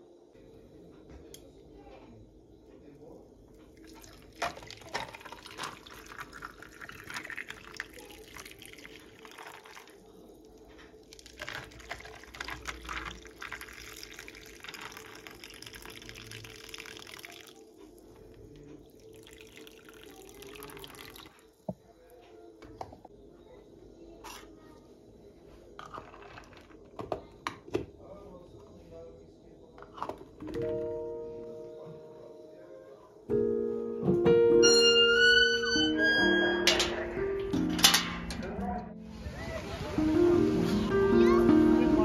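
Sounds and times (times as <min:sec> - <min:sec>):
coffee pouring over ice: 0:03.7 - 0:21.5, 0:25.8 - 0:26.9.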